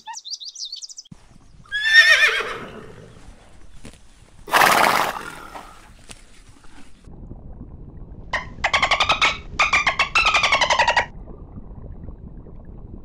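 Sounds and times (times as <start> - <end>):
horse whinnying: 1.7 - 3.2, 4.5 - 5.7
horse snorting: 4.5 - 6.0.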